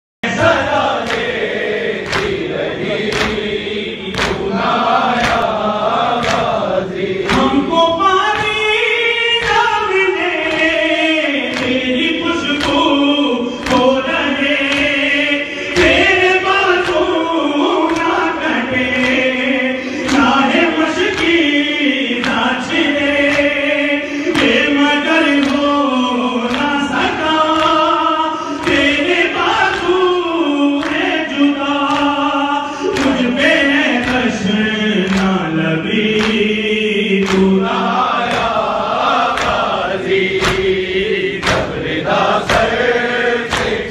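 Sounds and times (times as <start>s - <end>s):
voices chanting along: 0.2s - 43.9s
hands beating chests: 0.8s - 15.1s, 37.2s - 43.9s
man chanting into a microphone: 2.3s - 43.9s.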